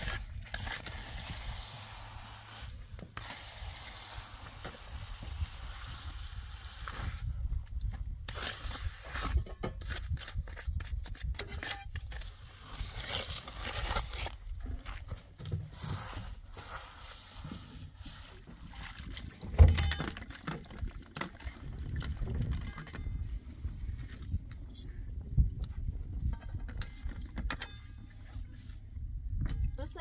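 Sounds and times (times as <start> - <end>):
trowel scraping wet cement: 0.0 - 15.1, 15.7 - 19.2.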